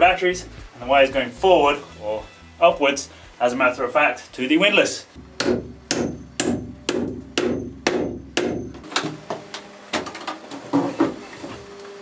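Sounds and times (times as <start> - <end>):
hammer driving nail into wood: 5.4 - 8.8.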